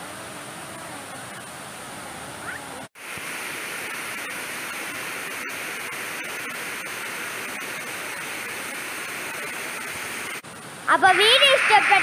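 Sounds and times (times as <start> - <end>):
stream rushing over rocks: 7.6 - 12.0.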